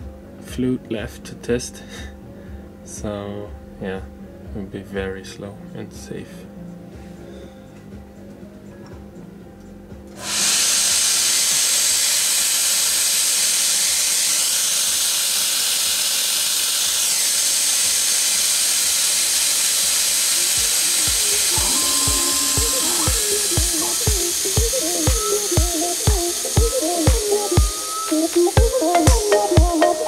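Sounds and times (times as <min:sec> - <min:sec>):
hiss of compressed air and mist: 0:10.2 - 0:29.6
held tones: 0:10.2 - 0:30.0
low regular thumps: 0:20.6 - 0:27.7.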